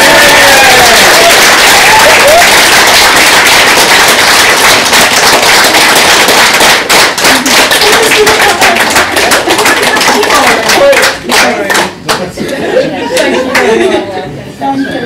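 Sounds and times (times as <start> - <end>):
whoops: 0.0 - 3.1
crowd applauding and cheering: 0.0 - 12.0.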